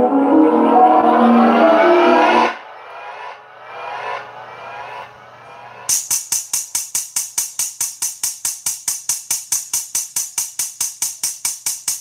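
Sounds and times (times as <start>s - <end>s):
tambourine-like percussion loop: 5.9s - 12.0s.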